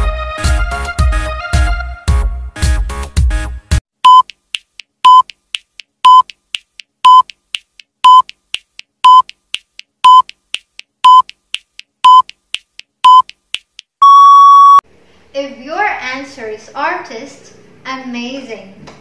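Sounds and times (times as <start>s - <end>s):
faint timer tick: 4.0s - 14.2s
high electronic beep: 14.0s - 14.8s.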